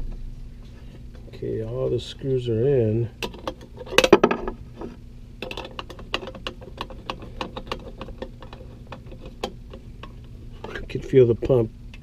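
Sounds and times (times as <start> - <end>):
metallic clicks and rattles: 5.4 - 10.8.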